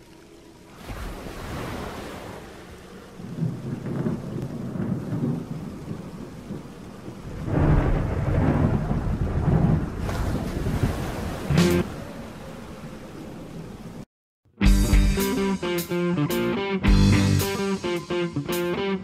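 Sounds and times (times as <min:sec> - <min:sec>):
rain: 0:00.0 - 0:14.1
thunder rumbling: 0:01.7 - 0:14.0.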